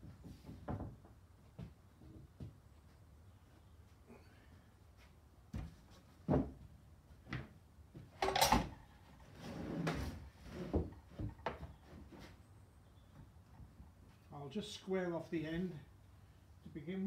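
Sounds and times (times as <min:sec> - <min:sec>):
timber scraping on wood: 0:09.2 - 0:12.4.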